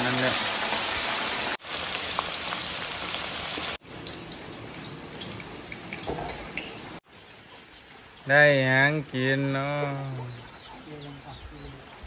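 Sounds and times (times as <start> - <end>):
oil sizzling and crackling: 0.0 - 8.3.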